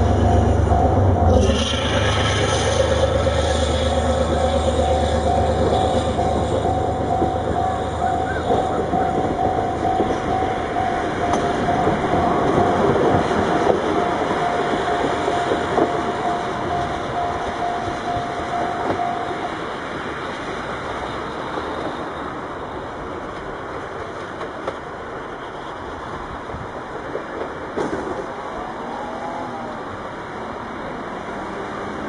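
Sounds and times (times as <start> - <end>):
pulsing steady tone: 0.0 - 19.6
train wheels rumbling on rail: 0.0 - 32.0.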